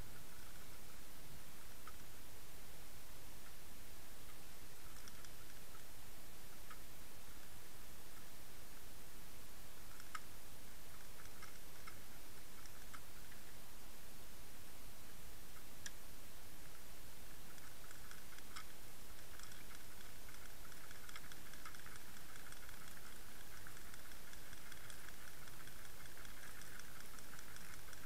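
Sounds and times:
sharp ticks: 1.6s - 2.2s, 4.3s - 5.9s, 9.8s - 13.6s, 16.6s - 28.0s.

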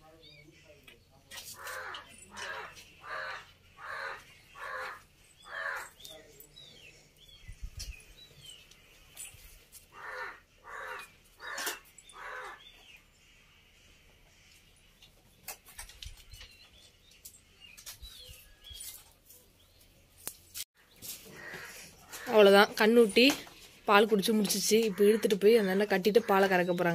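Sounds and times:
small birds chirping: 0.0s - 26.9s
crow cawing: 1.6s - 6.0s, 9.9s - 12.6s, 21.3s - 22.4s.

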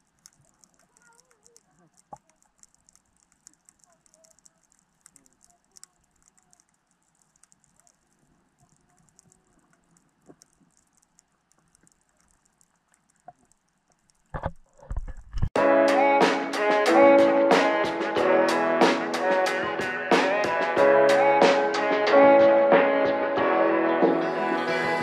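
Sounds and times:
underwater crackle of clicks: 0.0s - 15.5s.

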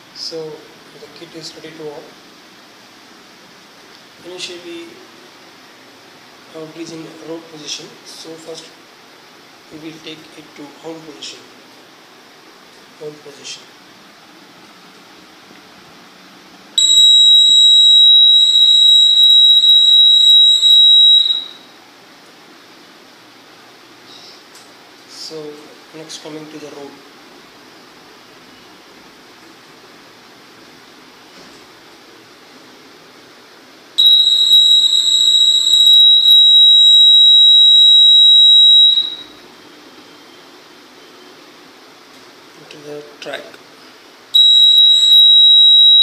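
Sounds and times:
high-pitched electronic hooter tone: 16.8s - 21.7s, 34.0s - 39.4s, 44.4s - 46.0s.

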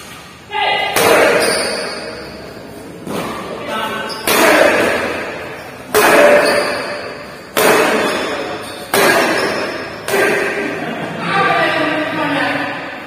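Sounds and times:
racket hitting shuttlecock: 3.0s - 10.8s.

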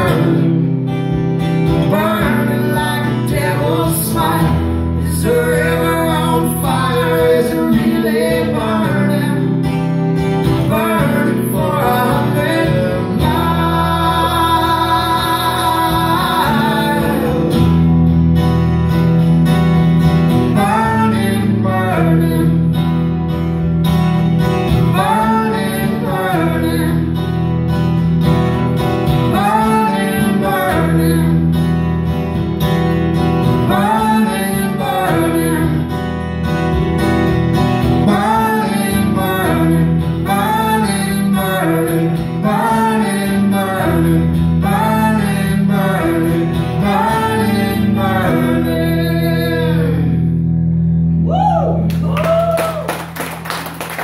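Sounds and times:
acoustic guitars: 0.0s - 54.0s
woman singing: 10.7s - 17.6s.

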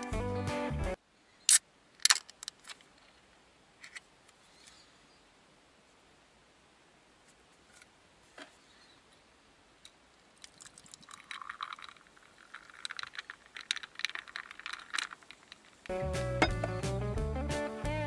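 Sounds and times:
carbonated drink fizzing in glass: 10.5s - 15.3s.

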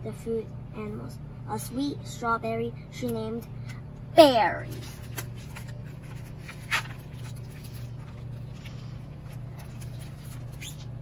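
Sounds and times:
steady low hum: 0.0s - 11.0s
paper rustling of pages: 4.7s - 11.0s.

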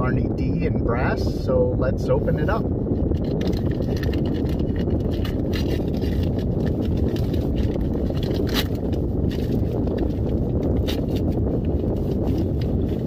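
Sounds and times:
steady low rumble: 0.0s - 13.0s
paper envelope tearing: 3.3s - 11.3s.

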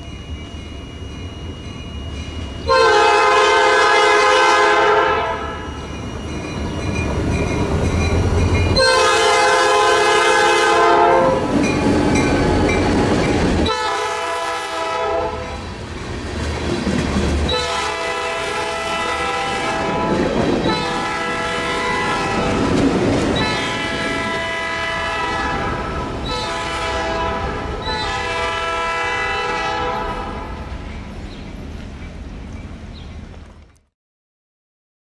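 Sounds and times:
freight train rumbling past: 0.0s - 33.8s
locomotive horn chords: 2.7s - 5.8s, 8.8s - 12.8s, 13.6s - 15.6s, 17.5s - 22.7s, 23.4s - 30.6s
wheels clacking over rail joints: 5.9s - 9.0s, 15.5s - 18.9s.

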